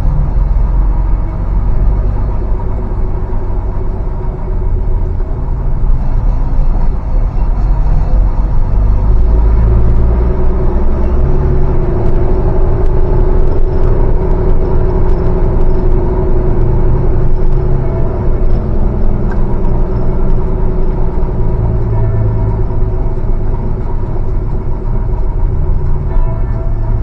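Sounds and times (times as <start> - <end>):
bus diesel engine running: 0.0 - 27.0.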